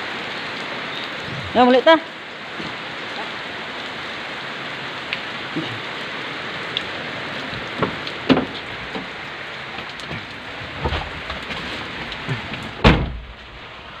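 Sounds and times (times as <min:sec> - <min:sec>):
heavy rain on vehicle roof: 0:00.0 - 0:14.0
raindrops ticking: 0:04.9 - 0:13.7
loud thump: 0:12.8 - 0:13.3.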